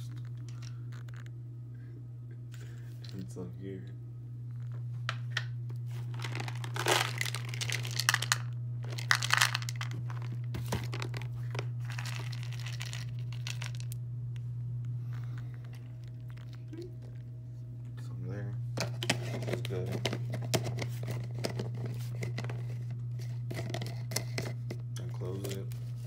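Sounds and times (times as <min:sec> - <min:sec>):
steady low hum: 0:00.0 - 0:26.0
crinkly packaging handled: 0:05.8 - 0:14.0.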